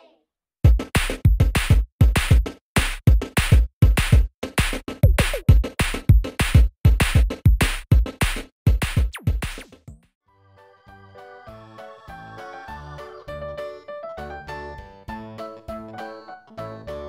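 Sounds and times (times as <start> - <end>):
drum-machine beat: 0.6 - 10.0.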